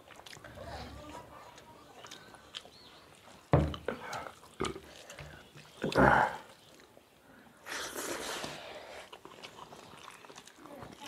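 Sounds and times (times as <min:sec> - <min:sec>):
people eating by hand: 0:00.0 - 0:11.0
breathy hiss: 0:07.6 - 0:09.1.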